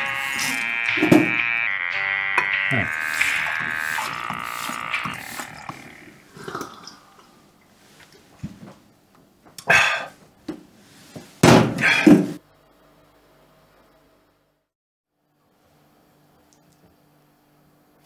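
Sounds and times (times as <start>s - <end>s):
tune playing: 0.0s - 6.3s
man making throaty noises: 0.0s - 7.3s, 9.6s - 10.2s, 11.8s - 12.3s.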